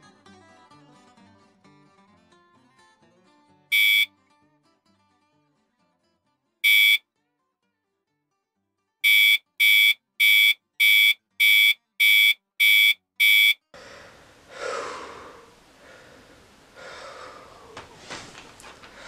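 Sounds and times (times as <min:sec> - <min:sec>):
alarm clock beeping: 0:03.7 - 0:04.1, 0:06.6 - 0:07.0, 0:09.0 - 0:13.6
person gasping: 0:13.8 - 0:18.1
person breathing: 0:13.8 - 0:19.0.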